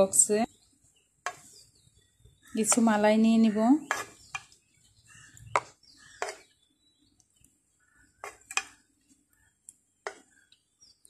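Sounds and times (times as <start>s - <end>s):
spoon scraping plastic box: 3.8s - 4.4s.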